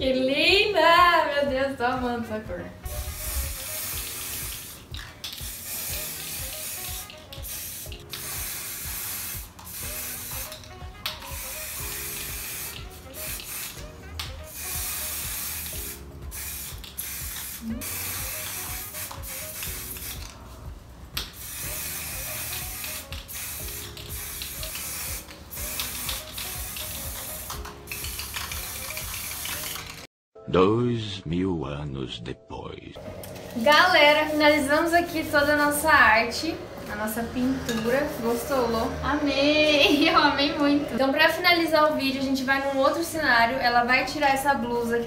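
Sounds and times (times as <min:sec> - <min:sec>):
soft background music: 0:00.0 - 0:45.0
aerosol spray can hissing: 0:02.9 - 0:20.5, 0:21.2 - 0:30.1.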